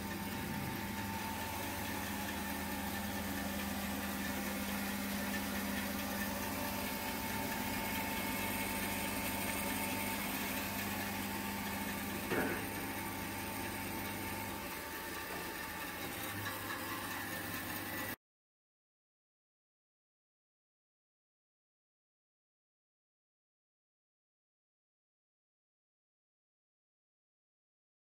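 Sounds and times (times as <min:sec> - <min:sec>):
bandsaw motor hum: 0:00.0 - 0:18.2.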